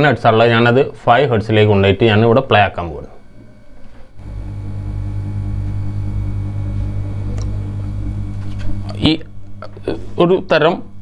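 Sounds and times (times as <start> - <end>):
subwoofer low drone with buzzing: 3.2 - 11.0.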